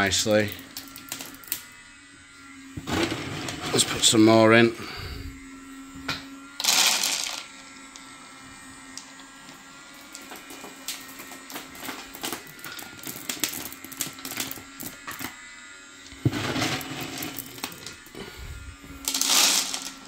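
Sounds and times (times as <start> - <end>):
pellets clicking into bucket: 0.5 - 1.6, 6.6 - 7.5, 10.2 - 15.3, 16.3 - 18.2, 19.0 - 20.0
low motor hum: 0.5 - 20.0
pellets rattling into hopper: 2.9 - 4.0, 6.6 - 7.4, 11.4 - 15.0, 16.3 - 18.3, 19.0 - 20.0.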